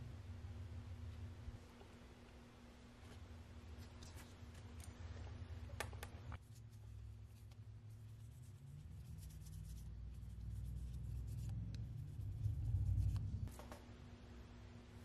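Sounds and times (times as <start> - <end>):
wipe rubbing over nails: 6.4 - 13.6.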